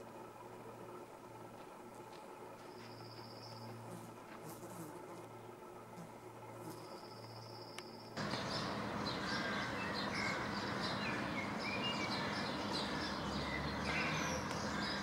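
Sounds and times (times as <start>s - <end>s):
background hiss: 0.0s - 15.0s
small birds chirping: 2.6s - 4.6s, 6.4s - 15.0s
whistled bird notes: 6.8s - 15.0s.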